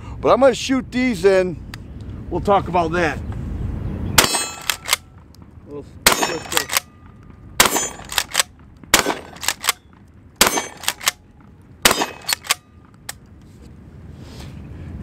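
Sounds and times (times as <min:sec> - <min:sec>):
shotgun shots: 0:04.2 - 0:05.1, 0:06.0 - 0:07.0, 0:07.6 - 0:09.8, 0:10.4 - 0:11.2, 0:11.8 - 0:12.7.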